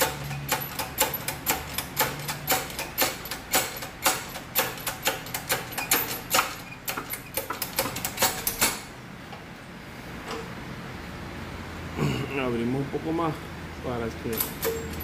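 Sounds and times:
sharp metallic clicks: 0:00.0 - 0:08.9, 0:14.3 - 0:15.0.

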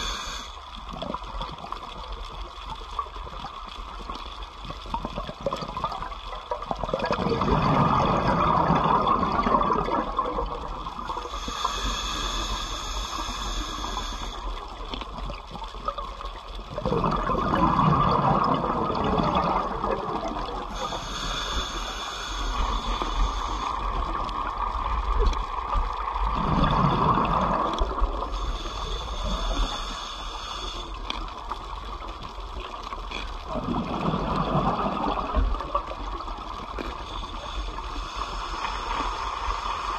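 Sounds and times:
regulator inhalation hiss: 0:00.0 - 0:00.8, 0:11.2 - 0:14.7, 0:20.6 - 0:24.6, 0:28.2 - 0:31.2, 0:37.0 - 0:39.9
exhaled bubbles rushing underwater: 0:04.1 - 0:11.7, 0:14.6 - 0:21.7, 0:22.4 - 0:29.9, 0:31.2 - 0:38.9.

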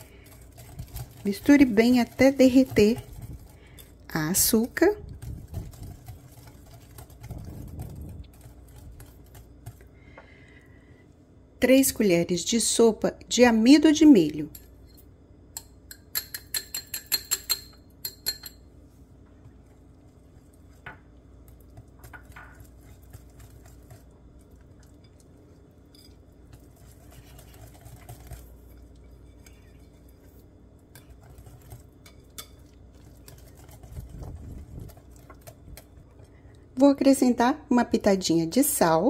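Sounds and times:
whisk clicking against bowl: 0:00.0 - 0:09.9, 0:15.6 - 0:18.6, 0:30.9 - 0:36.3
wet whisking of batter: 0:00.0 - 0:10.0, 0:16.2 - 0:37.4
glass dish clinking on whisk: 0:15.6 - 0:18.6.

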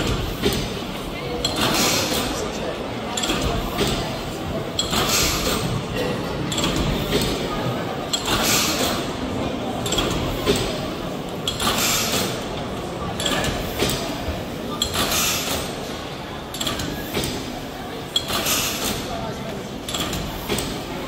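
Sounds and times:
murmur of people talking: 0:00.0 - 0:21.0
valve gear clicks and clanks: 0:19.8 - 0:20.9.

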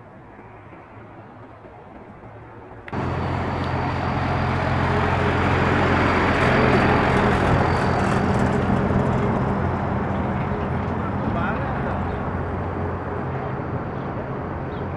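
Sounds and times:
outdoor street noise: 0:00.0 - 0:14.9
truck engine running: 0:03.0 - 0:13.3.

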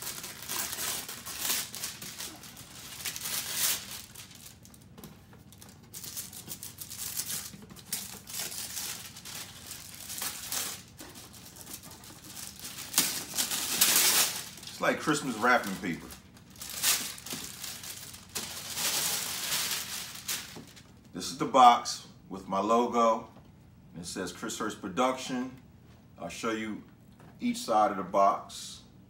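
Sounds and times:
wrapping paper crinkling: 0:00.0 - 0:21.1.

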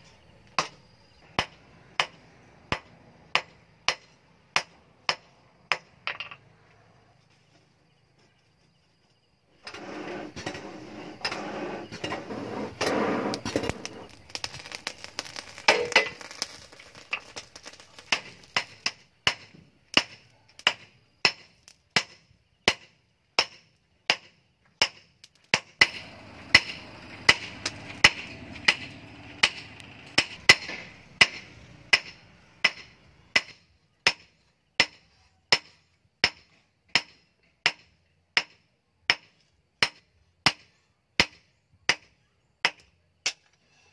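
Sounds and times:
hammer striking anvil: 0:25.6 - 0:36.4.

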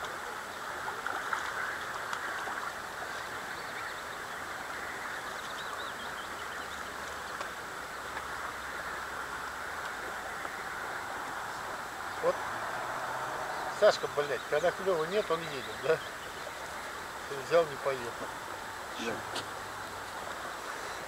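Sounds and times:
steady rushing background noise: 0:07.5 - 0:21.0.

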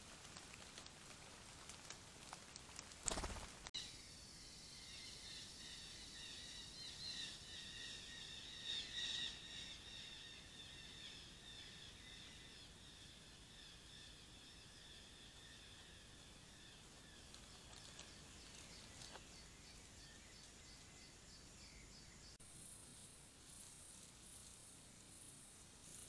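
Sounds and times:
high-pitched forest animal calls: 0:03.8 - 0:22.2.

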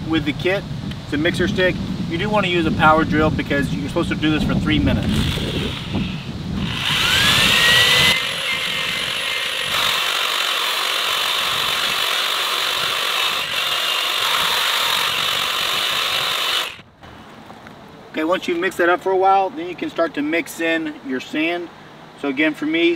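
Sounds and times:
power drill motor whining: 0:05.0 - 0:16.8.

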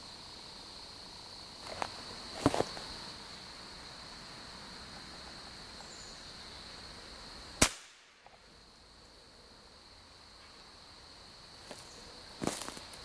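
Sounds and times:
rifle shot: 0:07.6 - 0:08.2.

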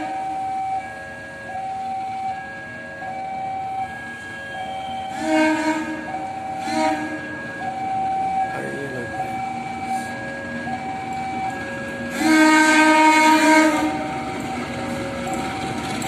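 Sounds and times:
train horn: 0:00.0 - 0:00.4, 0:04.4 - 0:07.4, 0:12.0 - 0:14.2
diesel locomotive approaching: 0:00.0 - 0:16.0.

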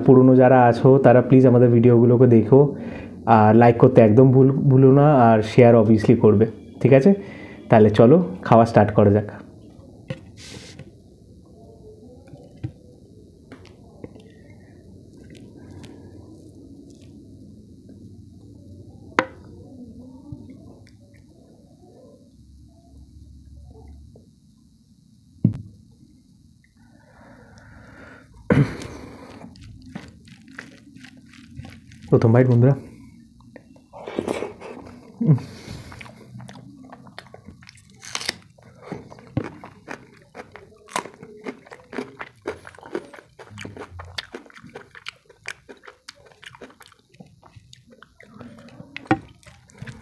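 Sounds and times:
crunching chilli: 0:12.0 - 0:19.6, 0:28.4 - 0:50.0
person chewing food: 0:13.5 - 0:17.4, 0:28.5 - 0:50.0
fingers mixing wet rice: 0:29.4 - 0:32.7.

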